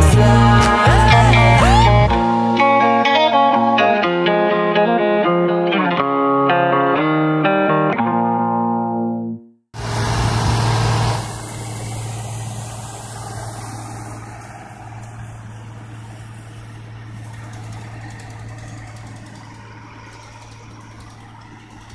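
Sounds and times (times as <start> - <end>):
tractor diesel engine running: 9.8 - 21.9.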